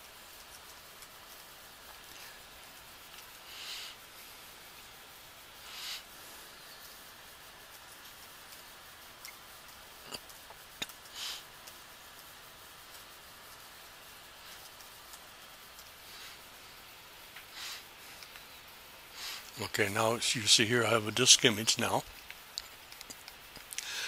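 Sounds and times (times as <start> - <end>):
steady hiss: 0.0 - 24.0
short breathy puffs: 3.3 - 4.1, 5.6 - 7.0, 10.8 - 11.5, 17.5 - 18.5, 19.1 - 19.6, 23.7 - 24.0.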